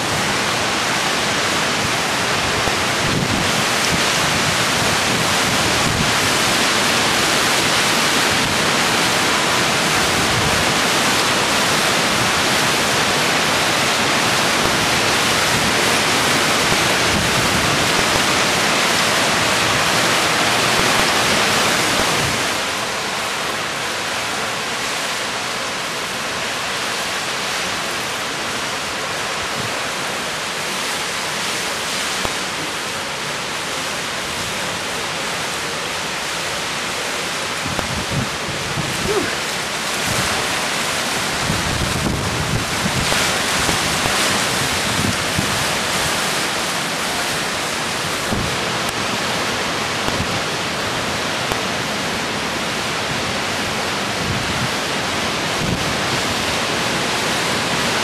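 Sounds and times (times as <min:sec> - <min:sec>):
driving rain: 0:00.0 - 0:58.0
hurricane wind: 0:00.0 - 0:58.0.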